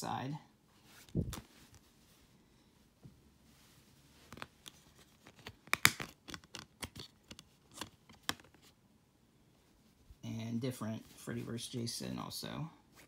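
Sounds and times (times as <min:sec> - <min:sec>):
plastic disc case clicks and scrapes: 0:04.3 - 0:08.7.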